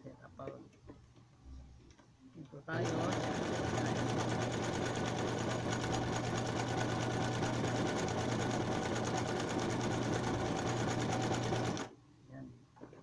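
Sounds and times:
sewing machine motor hum: 2.7s - 11.9s
sewing machine needle clatter: 2.8s - 11.9s.

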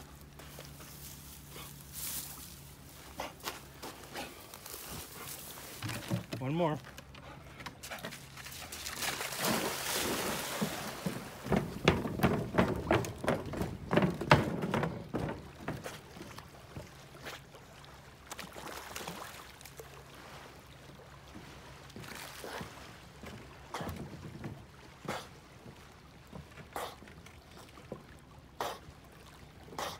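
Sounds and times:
dog paddling and splashing: 0.0s - 29.9s
sharp loud splashes and knocks: 8.4s - 17.6s.

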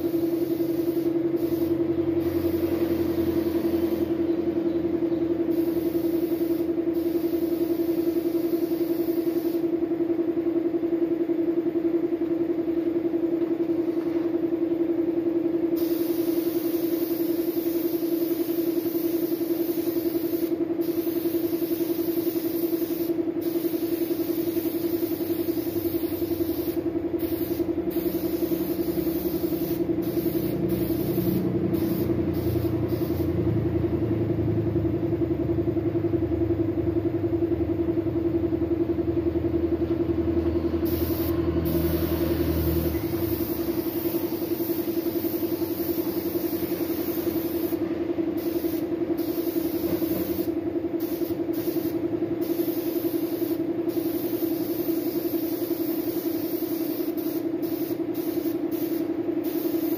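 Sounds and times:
spray gun air hissing: 0.0s - 4.2s, 5.4s - 9.7s, 15.8s - 33.4s, 40.8s - 59.9s
air compressor humming: 0.0s - 59.9s.

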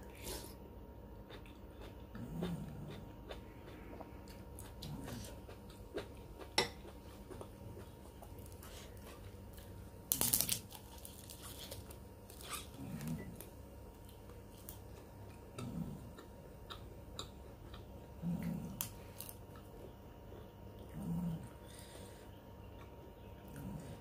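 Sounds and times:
chewing: 1.2s - 22.0s, 22.7s - 24.0s
cracker crunching: 7.3s - 15.4s.

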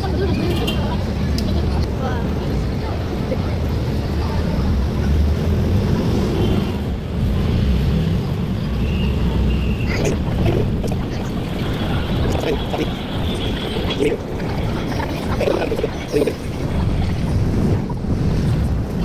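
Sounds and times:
tram running rumble: 0.0s - 19.0s
wind on microphone: 9.2s - 19.0s.

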